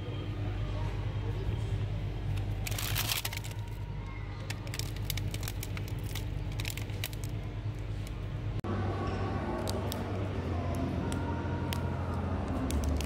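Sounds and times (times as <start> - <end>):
steady low hum: 0.0 - 13.0
plastic wrapper crackling: 2.4 - 8.2, 12.5 - 13.0.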